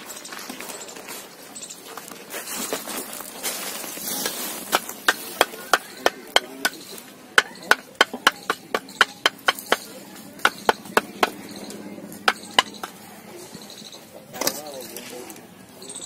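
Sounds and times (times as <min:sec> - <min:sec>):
bricks scraping: 0:03.7 - 0:13.0
bricks clinking together: 0:04.2 - 0:13.0.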